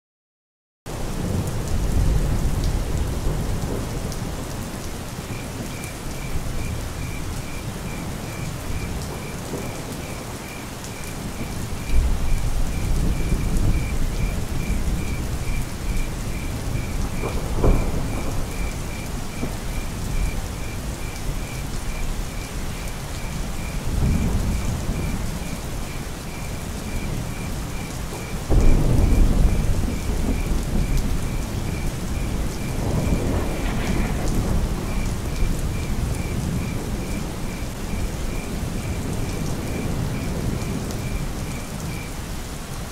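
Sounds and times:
heavy rainfall: 0.9 - 42.9
thunder rolling: 11.2 - 21.5, 28.5 - 42.0.

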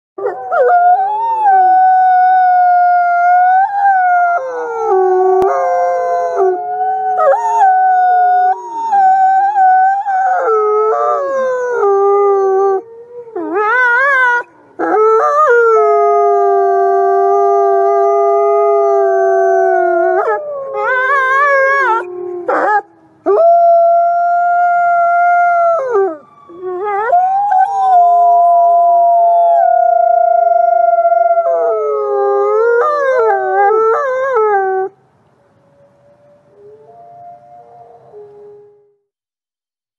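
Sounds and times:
wolf howling: 0.2 - 34.9, 36.2 - 39.0.

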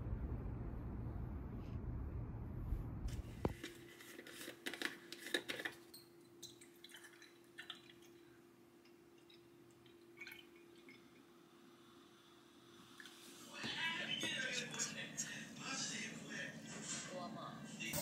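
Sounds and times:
faint steady hum: 0.0 - 18.0
milk pouring into a glass: 6.4 - 13.3.

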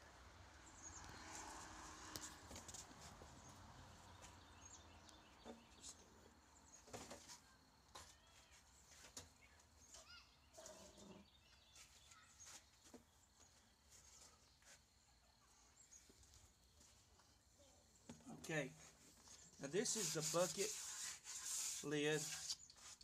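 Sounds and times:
faint bird chirps: 4.1 - 16.4.

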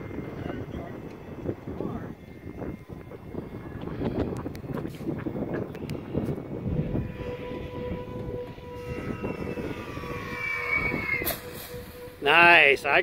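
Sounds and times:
model plane propeller whine: 0.0 - 13.0.

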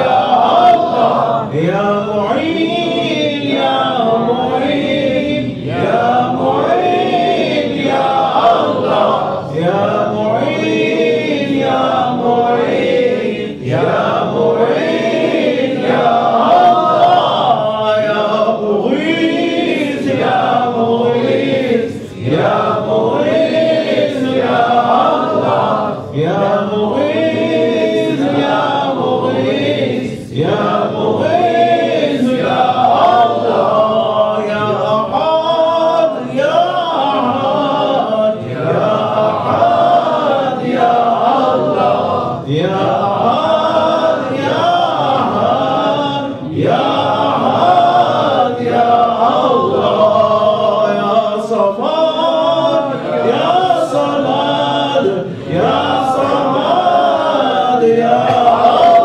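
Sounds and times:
men chanting in a group: 0.0 - 59.0.

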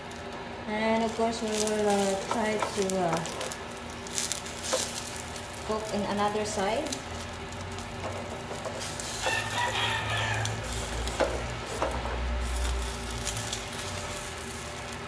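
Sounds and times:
food frying in a pan: 0.0 - 15.0
rooster crowing: 9.1 - 11.2.

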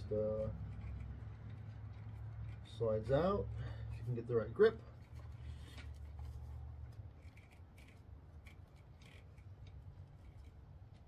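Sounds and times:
plastic plug rubbing and clicking: 4.8 - 11.0.

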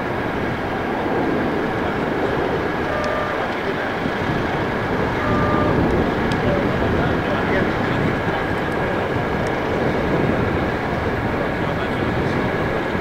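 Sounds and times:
jet engine noise: 0.0 - 13.0
faint high whine: 2.8 - 4.0, 4.7 - 5.9.

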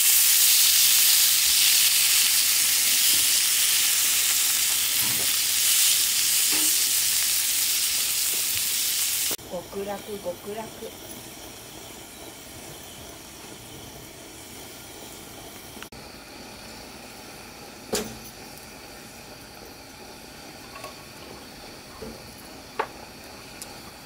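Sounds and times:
kerosene lantern hissing: 0.0 - 24.0.

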